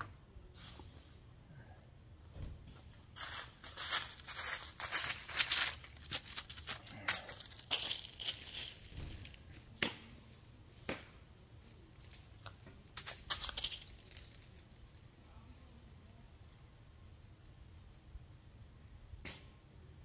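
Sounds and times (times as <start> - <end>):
footsteps crunching dry leaves: 2.7 - 10.9, 11.6 - 14.8.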